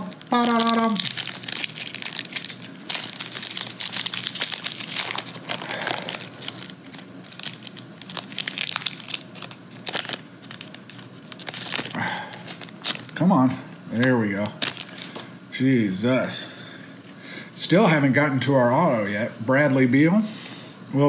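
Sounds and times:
foil wrapper tearing and crinkling: 0:00.0 - 0:13.2, 0:14.6 - 0:15.2.

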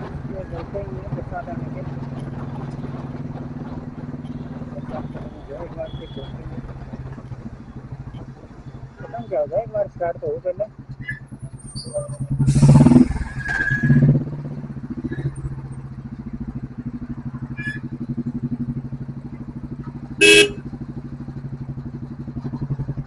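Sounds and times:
motorcycle engine pulsing: 0:00.0 - 0:23.0
vehicle horn blast: 0:20.2 - 0:20.7.

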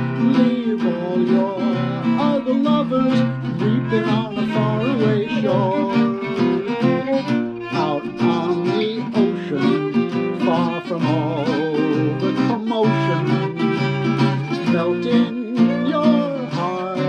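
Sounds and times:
acoustic guitar strumming swing chords: 0:00.0 - 0:17.0
violin melody with vibrato: 0:00.0 - 0:17.0.

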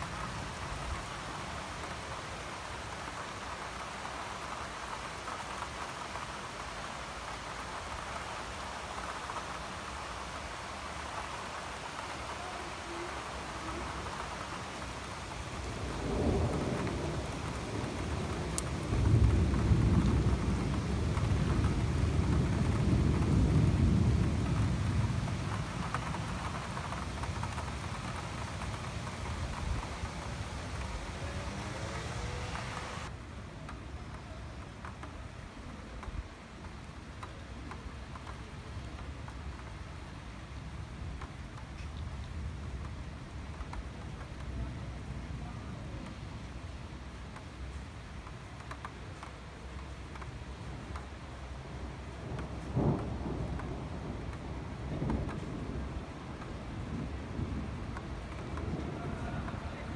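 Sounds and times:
steady rain falling: 0:00.0 - 0:59.9
rolling thunder rumble: 0:12.9 - 0:33.1, 0:51.8 - 0:59.9.

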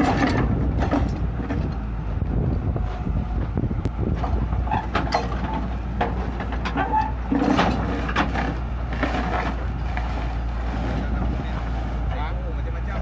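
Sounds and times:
clanks and knocks of tracks: 0:00.0 - 0:01.8, 0:04.1 - 0:09.5
excavator diesel engine running: 0:00.0 - 0:13.0.

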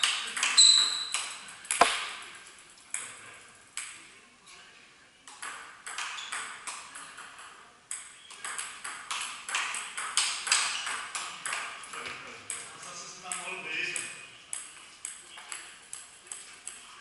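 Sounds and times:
table tennis ball hits: 0:00.0 - 0:02.2, 0:05.3 - 0:11.7.

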